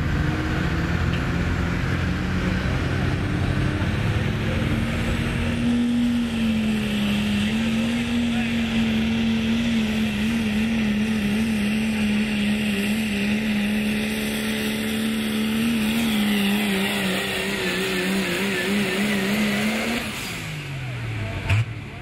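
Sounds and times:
diesel truck engine at high revs: 0.0 - 22.0.

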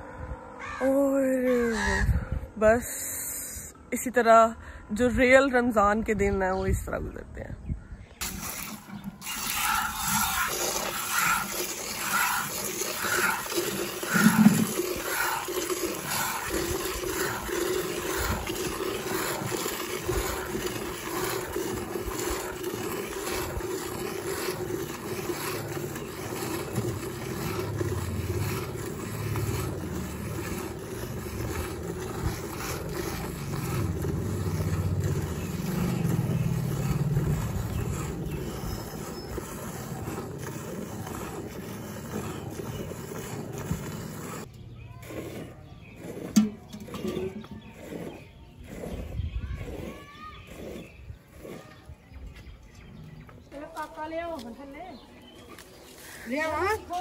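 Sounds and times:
milk squirting into metal pan: 8.2 - 44.5.

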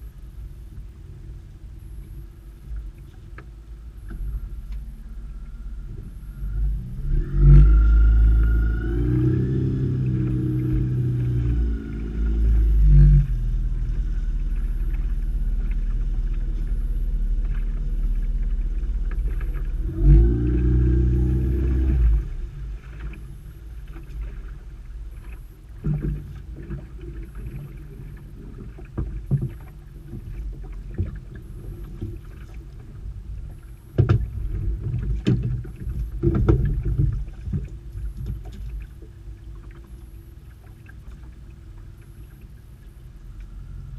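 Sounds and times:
outboard motor running: 0.0 - 43.9
water against hull: 0.0 - 43.9.

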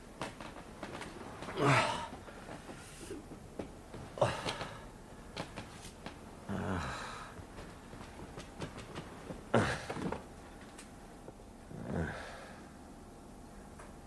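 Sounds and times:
man breathing heavily and groaning: 1.5 - 3.2, 4.1 - 4.9, 6.4 - 7.4, 9.5 - 10.2, 11.7 - 12.7.

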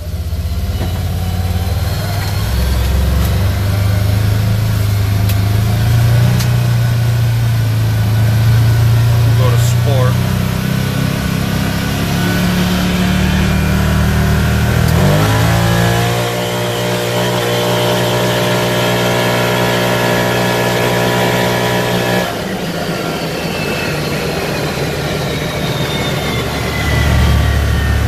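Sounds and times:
faint whine falling in pitch: 0.0 - 28.0
vehicle engine from inside cab: 0.0 - 28.0.

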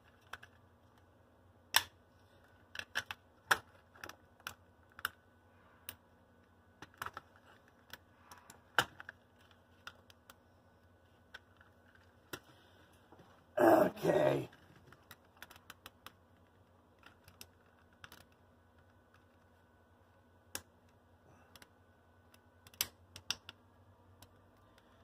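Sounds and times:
small plastic clicks: 1.7 - 5.2, 14.5 - 19.5, 20.5 - 25.0.

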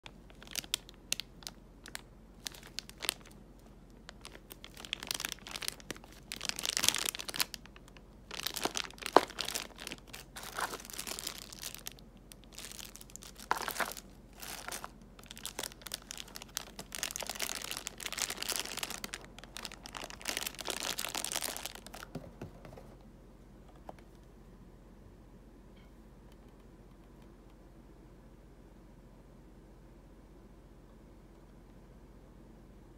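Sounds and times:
plastic bags crinkling: 0.0 - 22.4.

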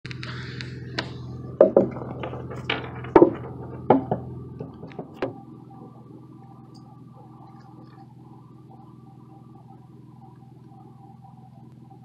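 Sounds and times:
low steady hum: 0.1 - 12.0.

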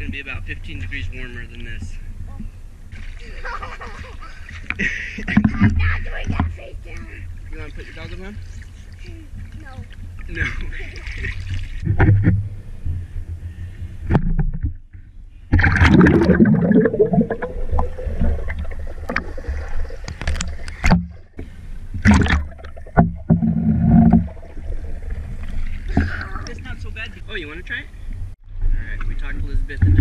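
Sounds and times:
muffled underwater rumbling: 0.0 - 30.0
pool water sloshing and splashing: 2.9 - 12.2, 15.6 - 27.0.

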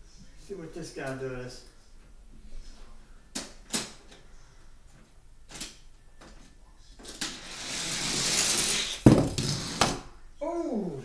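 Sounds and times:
toy car rolling down plastic track: 7.0 - 10.0.

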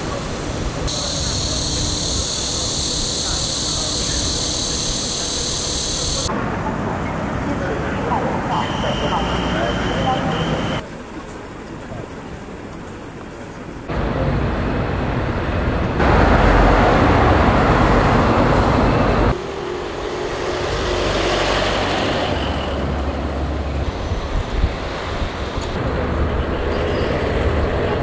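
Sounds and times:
traffic passing on street: 0.0 - 28.0.

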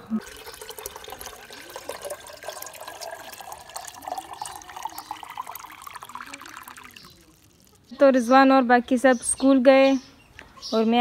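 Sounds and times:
water pouring into metal pot: 0.0 - 7.9.

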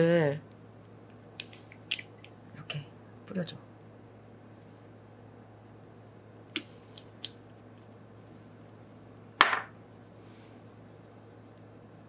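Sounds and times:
bottle knocking on surface: 9.4 - 9.7.

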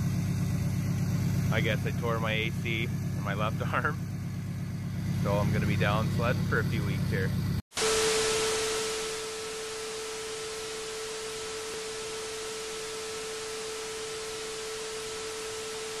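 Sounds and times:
tv static hiss: 7.8 - 16.0.

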